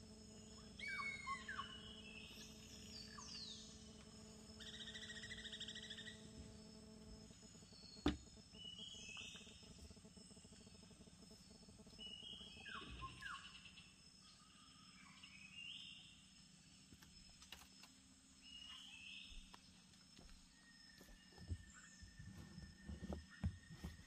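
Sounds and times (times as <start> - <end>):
high insect drone: 0.0 - 24.0
steady insect tone: 0.0 - 24.0
chirping calls: 0.4 - 6.4.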